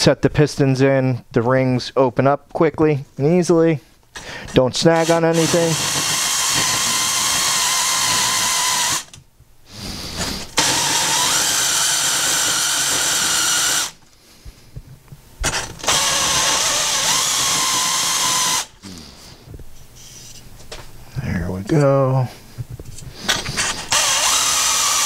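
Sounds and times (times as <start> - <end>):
rotary tool whining: 4.9 - 9.2, 10.2 - 14.0, 15.4 - 18.8, 23.3 - 25.0.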